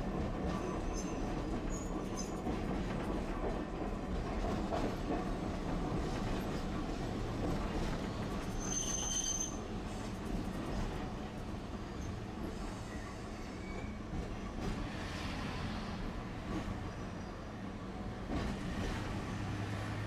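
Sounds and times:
wheels rumbling on rail: 0.0 - 20.0
high squeal: 8.5 - 9.6, 12.8 - 14.0.

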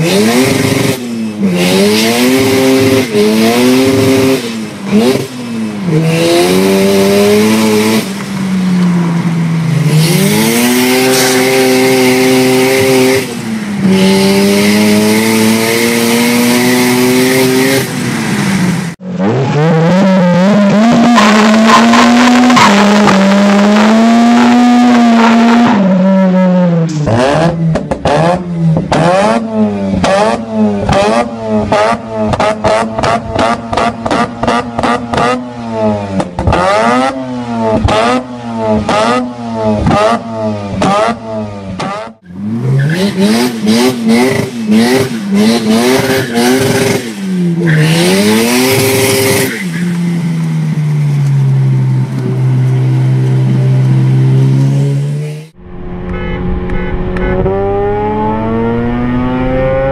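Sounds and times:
rotary engine revving: 9.7 - 25.8, 53.5 - 59.9.

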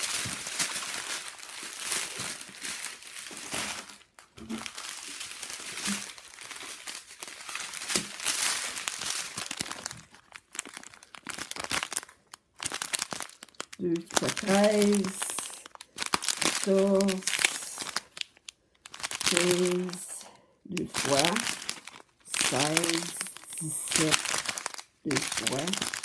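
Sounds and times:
plastic bags crinkling: 0.0 - 26.0.

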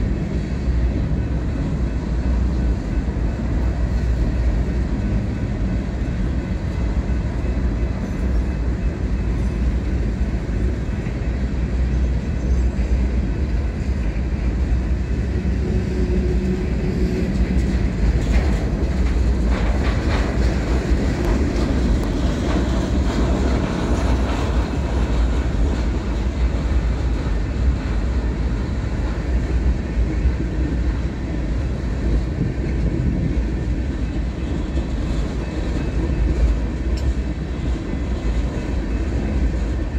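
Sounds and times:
train cars clanking and rattling: 0.0 - 39.9
train wheels rumbling on rail: 0.0 - 39.9.

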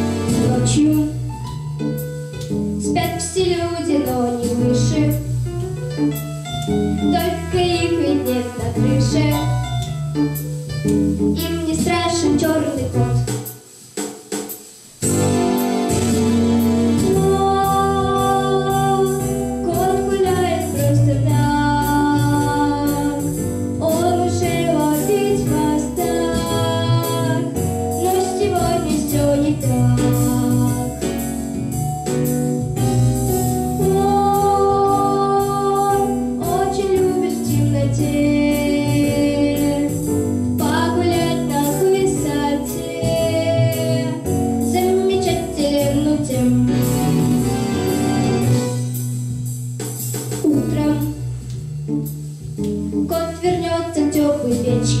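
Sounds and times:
girl singing into microphone: 0.0 - 1.3, 2.8 - 5.5, 7.0 - 9.9, 11.3 - 13.4, 17.0 - 31.2, 33.8 - 46.9, 50.4 - 51.2, 53.0 - 55.0
pop backing track: 0.0 - 55.0.

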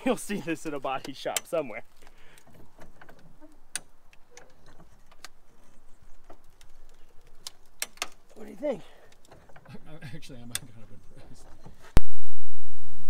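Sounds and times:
jack clicking metallic ticks: 0.2 - 8.4.

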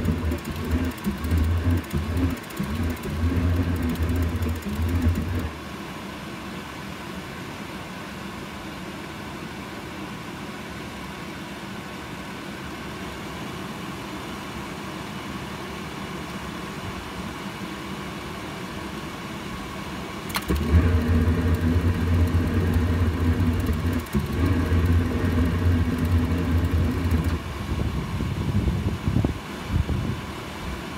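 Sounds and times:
furnace blower humming: 0.0 - 5.6, 20.3 - 28.1
sharp click: 20.3 - 27.4
burner low rumble: 20.5 - 27.6.

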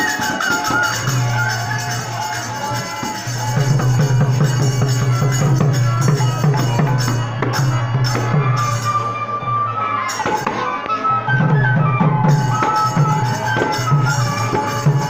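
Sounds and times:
barrel drum rhythm: 0.0 - 8.7
metal percussion jingling: 0.0 - 9.0.

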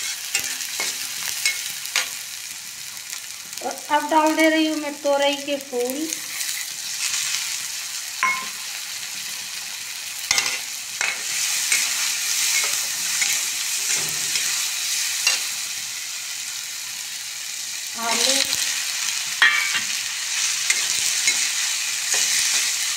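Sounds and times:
spatula scraping a pan: 0.0 - 2.2, 6.3 - 7.4, 10.3 - 15.6, 19.4 - 22.9
vegetables sizzling in oil: 0.0 - 22.9.

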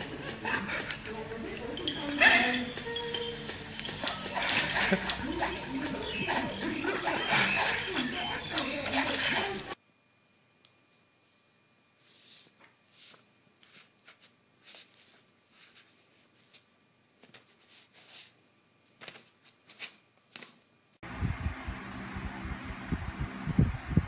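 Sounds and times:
paper rustling and crinkling: 12.0 - 20.7
loud steady noise: 21.0 - 24.0.

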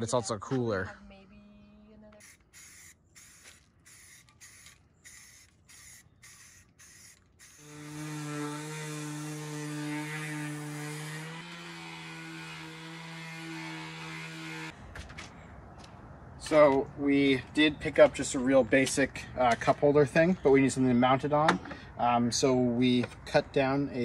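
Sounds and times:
spray-paint can hissing: 2.2 - 7.7
string trimmer motor whine: 2.3 - 14.7.

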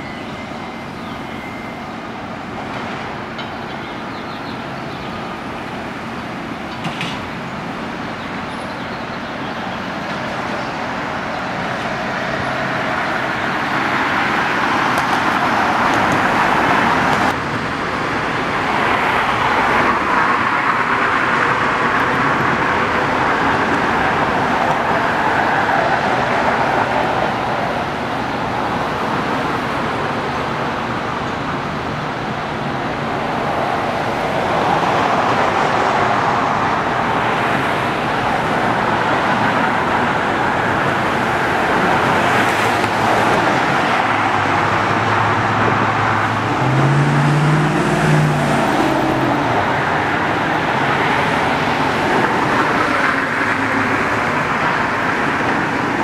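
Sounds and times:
road traffic noise: 0.0 - 56.0
vehicle accelerating: 41.4 - 55.7.

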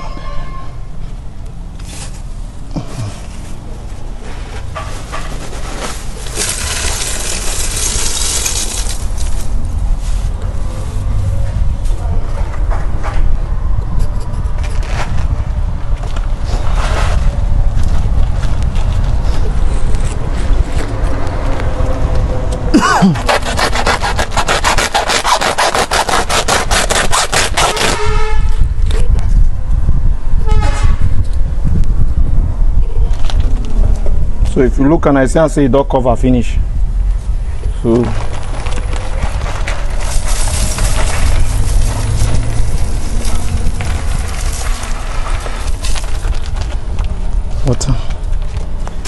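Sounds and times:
charcoal and salt pouring: 6.2 - 9.5, 39.6 - 46.0
low rumble: 36.6 - 47.6.

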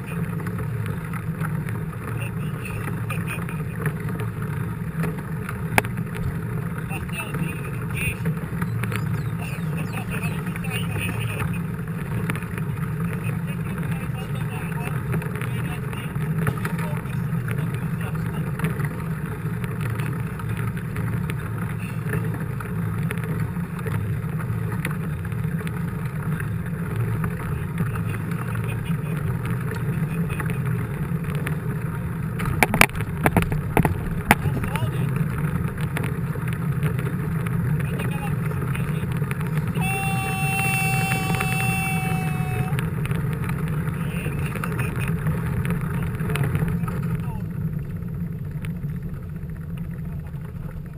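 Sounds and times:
mountain bike rolling: 0.0 - 50.9
tyre and wind rumble: 0.0 - 50.9
bike clicks and rattles: 30.5 - 37.8
steady high-pitched tone: 39.7 - 42.8.

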